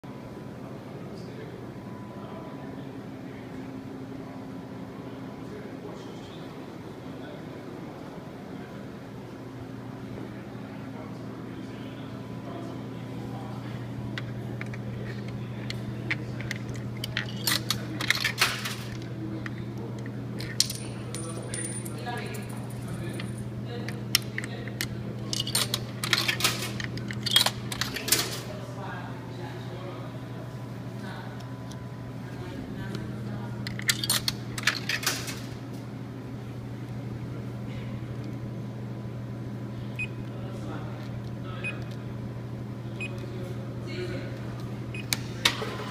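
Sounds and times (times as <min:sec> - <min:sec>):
steady low hum: 0:00.0 - 0:45.9
coins clinking in vending machine: 0:16.1 - 0:19.1, 0:20.4 - 0:24.5, 0:25.2 - 0:28.5, 0:33.7 - 0:35.6.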